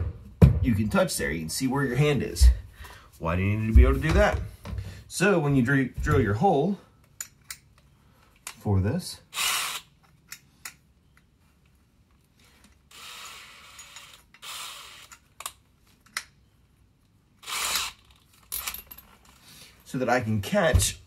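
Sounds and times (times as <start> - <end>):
cordless drill running: 12.9 - 15.1, 17.4 - 18.0.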